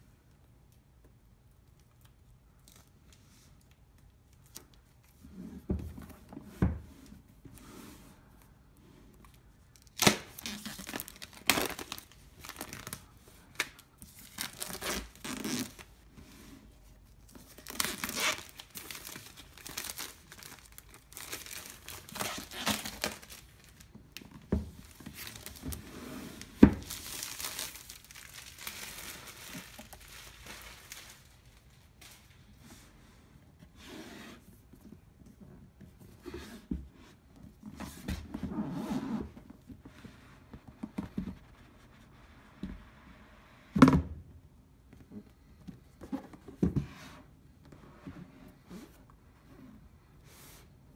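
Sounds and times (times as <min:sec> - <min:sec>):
plastic wrap crinkling: 0:09.7 - 0:15.9, 0:17.1 - 0:32.4.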